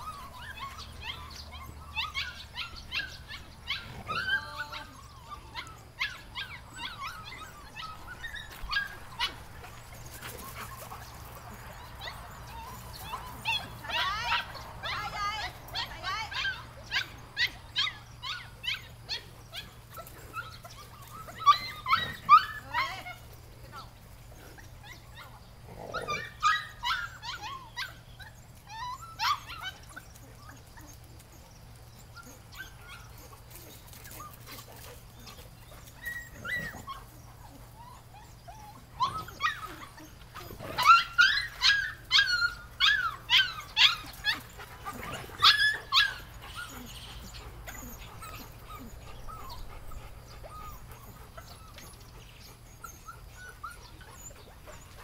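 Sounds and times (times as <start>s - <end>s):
puppies yipping and barking: 0.0s - 55.0s.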